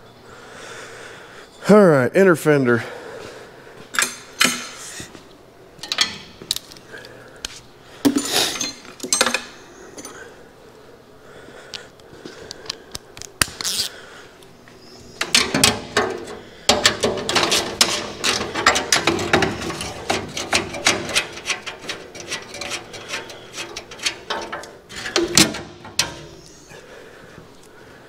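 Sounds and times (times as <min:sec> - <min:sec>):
metallic clank: 0:15.2 - 0:26.6.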